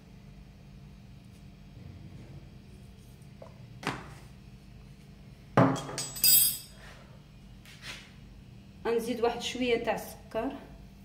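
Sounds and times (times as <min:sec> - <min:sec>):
sharp clinks of kitchenware: 0:05.7 - 0:06.8.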